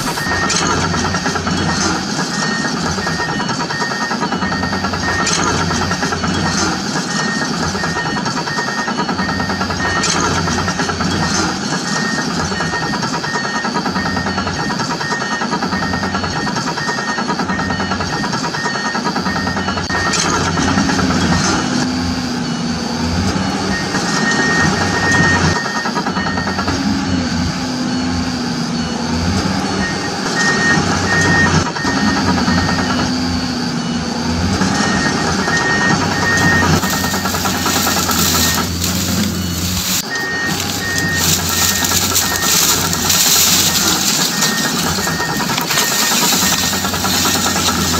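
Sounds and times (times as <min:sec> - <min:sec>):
warning beeps: 0:00.0 - 0:20.1, 0:34.8 - 0:47.9
engine running: 0:00.0 - 0:47.9
low stepping tone: 0:36.8 - 0:47.9.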